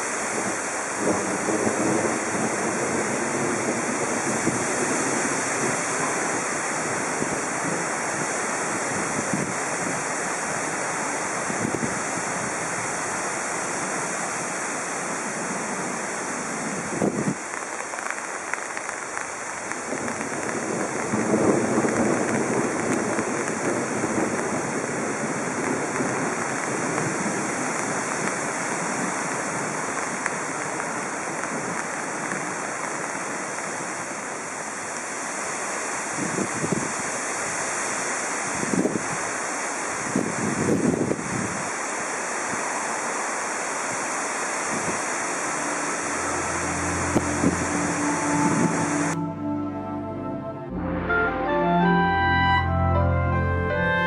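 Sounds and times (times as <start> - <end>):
wind rushing through trees: 0.0 - 49.8
wind buffeting the microphone: 0.1 - 15.6, 16.4 - 18.2, 19.6 - 34.2, 35.1 - 45.6, 46.9 - 49.2.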